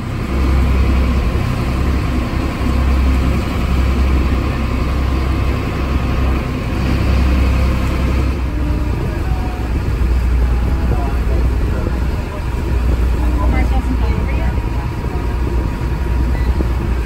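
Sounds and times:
motorboat engine running: 0.0 - 17.0
wake water rushing: 0.0 - 17.0.

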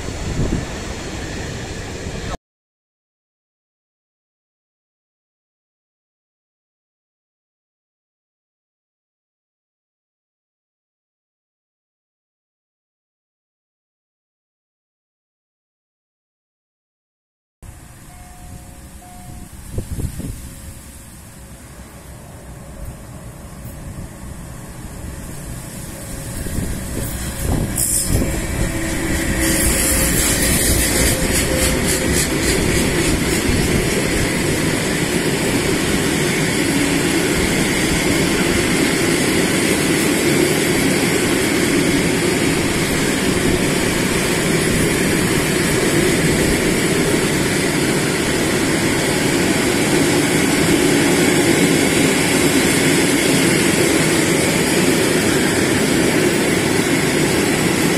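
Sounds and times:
electric locomotive passing: 0.0 - 2.4, 17.6 - 57.9
freight train wheels rumbling on rail: 0.0 - 2.4, 17.6 - 57.9.

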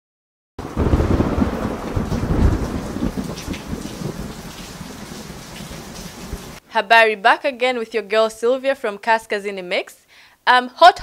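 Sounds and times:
rolling thunder: 0.6 - 6.6
steady rain: 0.6 - 6.6.

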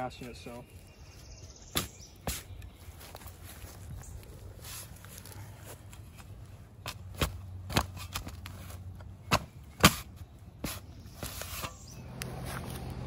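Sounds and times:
shovel chopping into soil: 1.7 - 2.7, 6.8 - 12.9.

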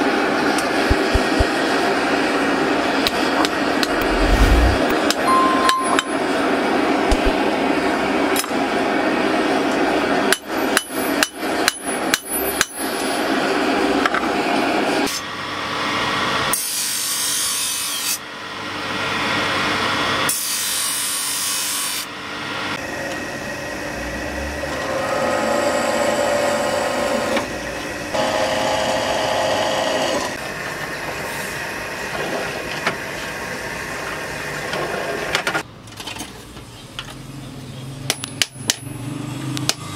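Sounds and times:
hammer striking steel on anvil: 5.3 - 6.2.

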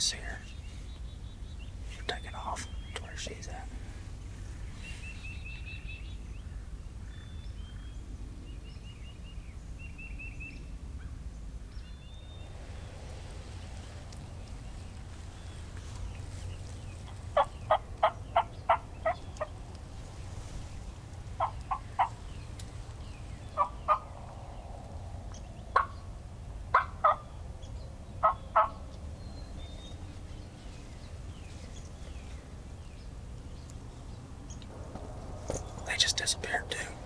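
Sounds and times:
turkey yelping: 26.7 - 27.2, 28.2 - 28.8.

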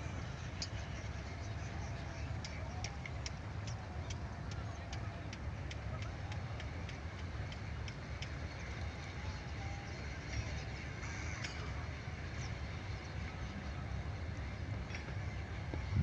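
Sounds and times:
wind rumble on microphone: 11.8 - 16.0.

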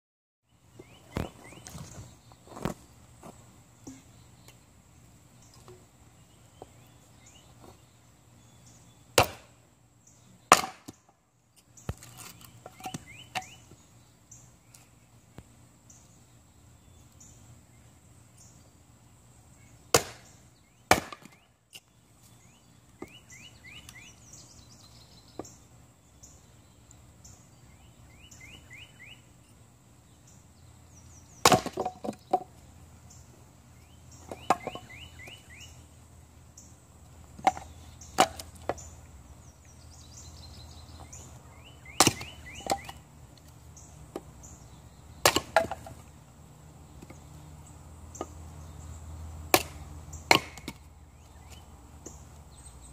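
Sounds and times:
axe chopping kindling on wood: 9.2 - 9.5, 10.5 - 11.0, 19.9 - 20.3, 20.9 - 21.4, 31.4 - 32.5, 37.4 - 38.8, 41.9 - 43.0, 45.2 - 46.0, 49.5 - 50.8.

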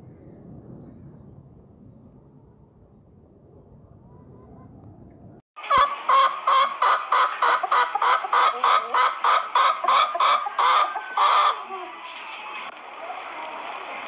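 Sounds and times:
chicken clucking: 5.6 - 12.4.

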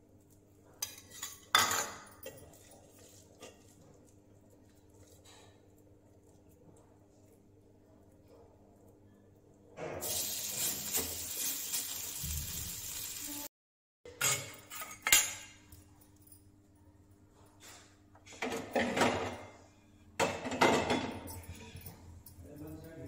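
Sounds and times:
pots and pans clanking: 0.8 - 3.7, 14.1 - 15.6, 17.6 - 19.6, 20.2 - 22.0.

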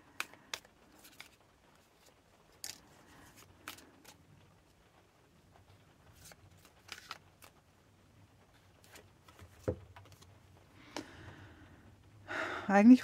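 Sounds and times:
cards clicking on tabletop: 3.6 - 4.2, 6.2 - 7.5.

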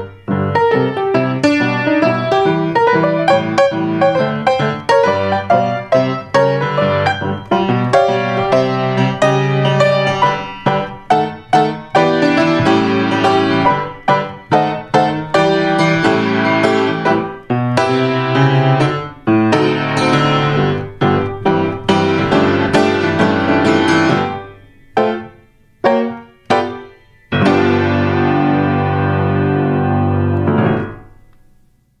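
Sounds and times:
grand piano chords: 0.0 - 32.0.

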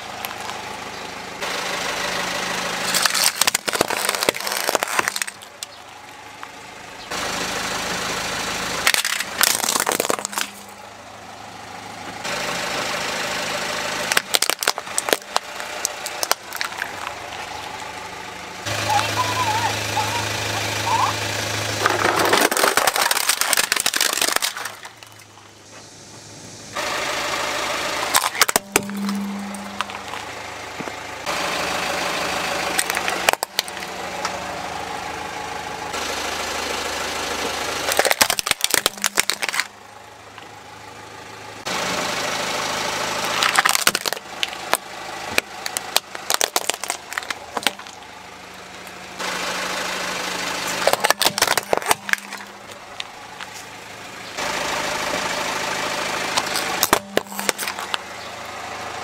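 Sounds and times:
car engine running: 0.0 - 59.0
plastic toys cracking under tyre: 2.8 - 6.0, 8.8 - 10.7, 14.0 - 17.9, 21.8 - 25.4, 28.1 - 30.2, 32.7 - 33.9, 37.8 - 39.7, 43.2 - 48.1, 50.7 - 53.5, 56.3 - 58.0.

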